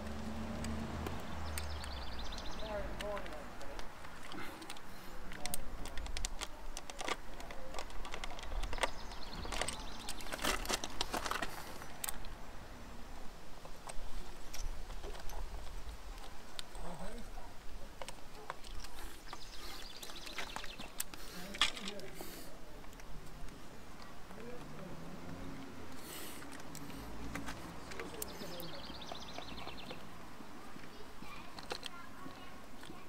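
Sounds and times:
clicks and taps of handled parts: 3.0 - 12.4, 26.4 - 28.4, 31.5 - 33.0.

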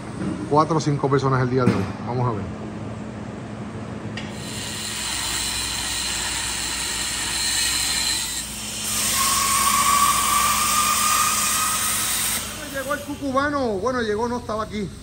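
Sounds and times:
angle grinder grinding steel: 4.3 - 13.4.

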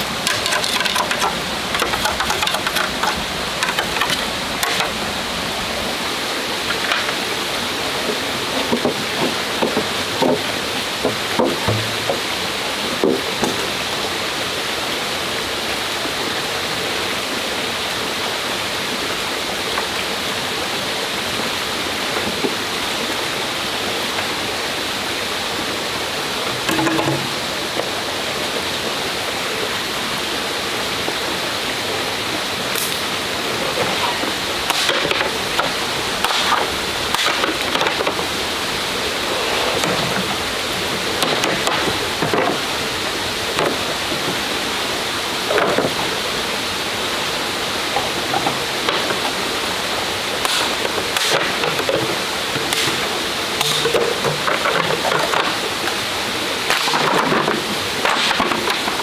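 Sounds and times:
clicks and splashes: 0.0 - 5.0, 33.8 - 38.3, 56.6 - 59.0
forest stream rushing: 0.0 - 59.0.

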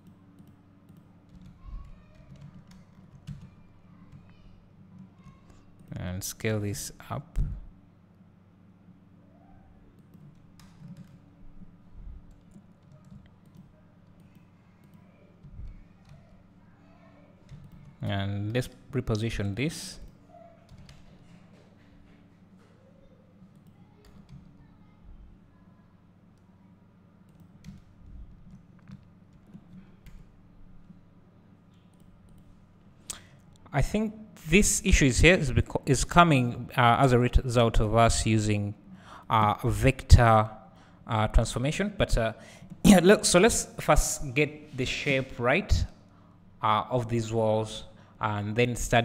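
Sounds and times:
low steady hum: 0.0 - 49.0
keyboard and mouse clicks: 10.0 - 11.2, 12.3 - 16.3.

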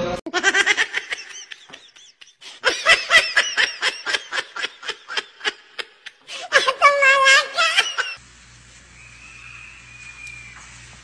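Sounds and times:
person laughing hard: 0.3 - 8.2.

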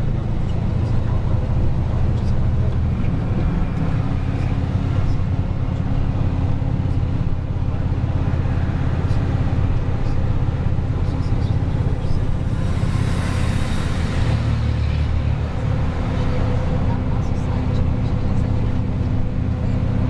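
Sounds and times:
truck engine droning: 0.0 - 20.0
rushing hiss: 12.3 - 15.6.

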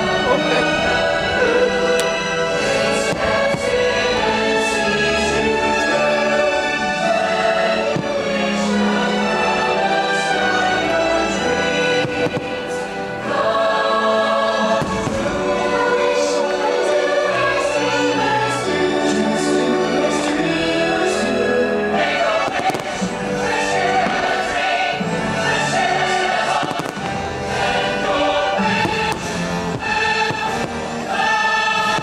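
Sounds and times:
choir singing over orchestra: 0.0 - 32.0
firework bangs: 11.9 - 12.9, 14.8 - 15.6, 22.4 - 23.2, 26.4 - 32.0.

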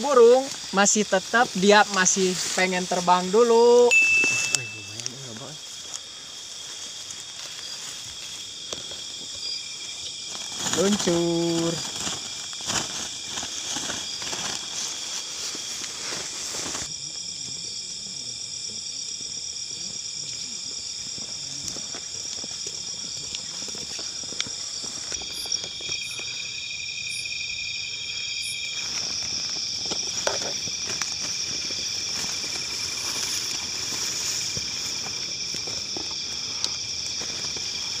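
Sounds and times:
night insects trilling: 0.0 - 38.0
footsteps in grass: 3.9 - 16.9, 28.5 - 38.0.

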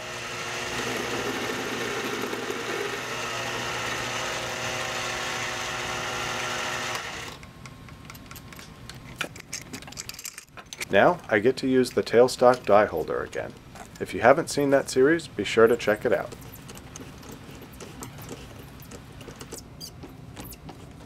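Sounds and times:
metal lathe whining: 0.0 - 7.4.

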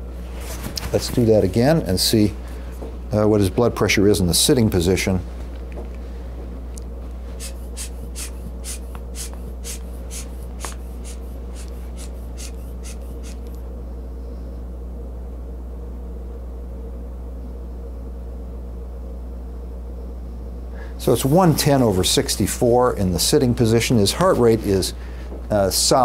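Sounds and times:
steady low hum: 0.0 - 26.0
inflation bulb squeezed puffing air: 7.4 - 13.6.

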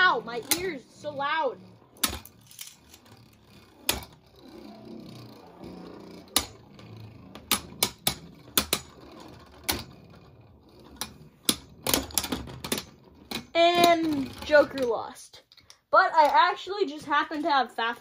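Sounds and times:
low whir of spinning tops: 0.0 - 15.0
spinning tops clacking: 0.0 - 15.0.

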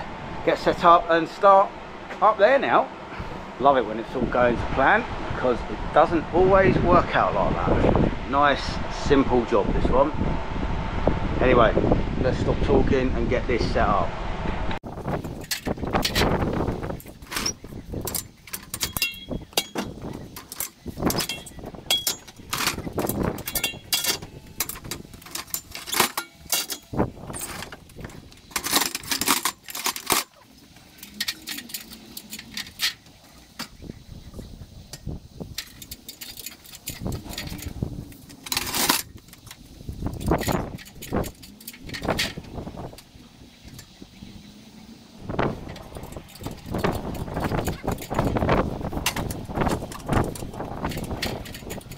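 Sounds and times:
scaffold parts clanking and rattling: 14.9 - 44.6, 45.2 - 51.9.

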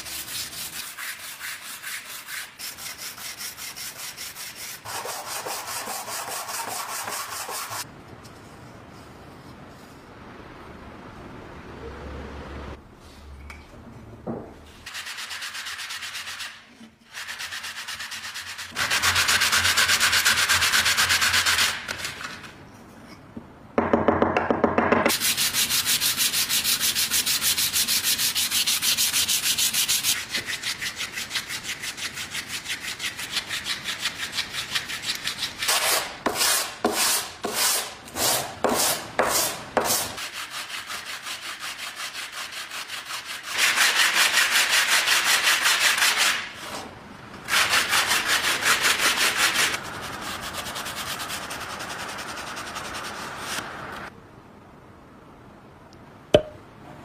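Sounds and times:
metal plate rubbed on sandpaper: 14.8 - 22.2, 25.1 - 46.4.

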